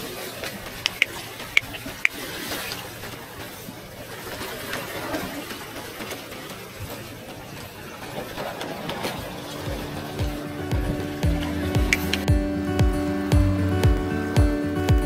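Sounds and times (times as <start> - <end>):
background music: 9.2 - 15.0
fishing reel ticking: 9.4 - 12.4.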